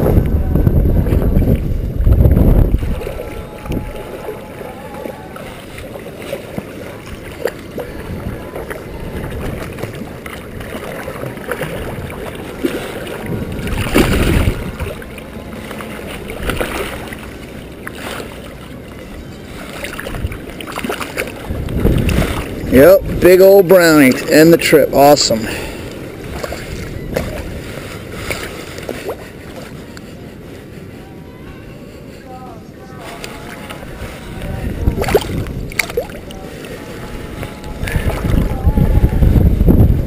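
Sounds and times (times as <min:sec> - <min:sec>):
wind buffeting microphone: 0:00.0 - 0:40.0
fish splashing in water: 0:02.7 - 0:22.7, 0:25.5 - 0:29.3, 0:34.8 - 0:38.6.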